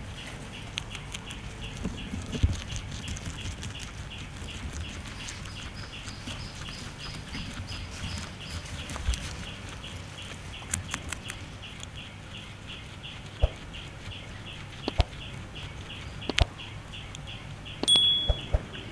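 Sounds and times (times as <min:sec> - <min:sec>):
guinea pig chewing grass: 0:00.0 - 0:18.9
faint repeating chirp: 0:17.7 - 0:18.9
electronic tone: 0:17.9 - 0:18.6.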